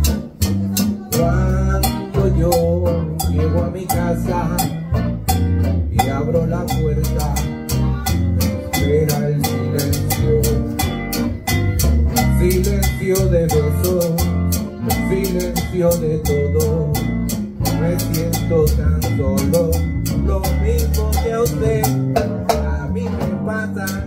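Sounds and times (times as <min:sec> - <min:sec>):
congas and timbales rhythm: 0:00.0 - 0:24.0
guitar: 0:00.0 - 0:24.0
latin band playing: 0:00.0 - 0:24.0.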